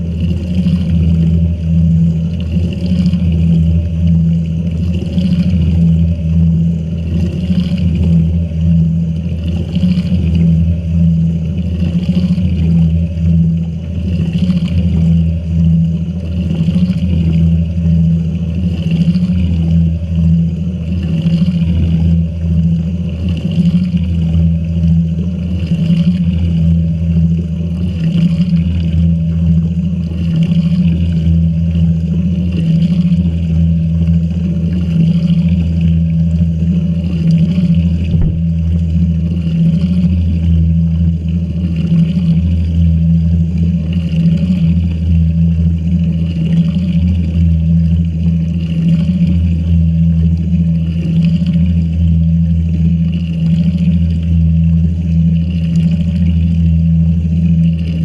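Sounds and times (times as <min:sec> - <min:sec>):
washing machine humming: 0:00.0 - 0:58.0
water pouring and splashing: 0:20.8 - 0:52.3.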